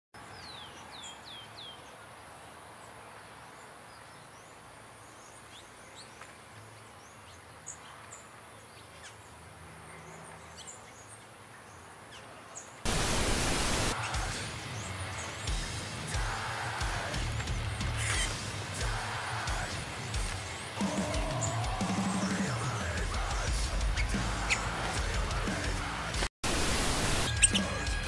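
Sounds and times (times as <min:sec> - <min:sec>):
small birds chirping: 0:00.2 - 0:25.7, 0:27.0 - 0:28.0
sudden loud rush of noise: 0:12.9 - 0:14.4.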